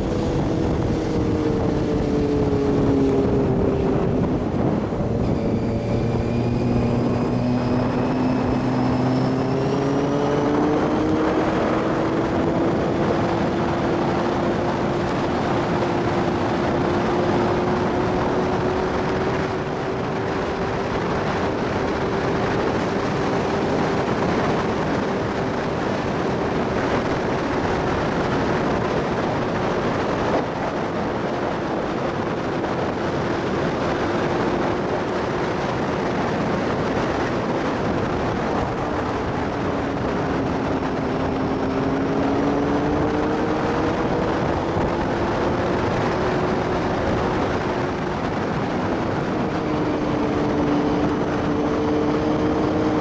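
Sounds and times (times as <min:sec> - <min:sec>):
motorcycle engine running: 0:00.0 - 0:53.0
wind rushing: 0:00.0 - 0:53.0.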